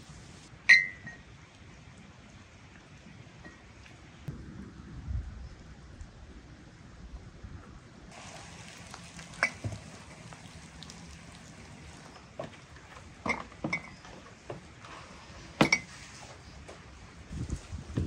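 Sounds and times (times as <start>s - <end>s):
glass jars clinking: 13.2s - 14.2s.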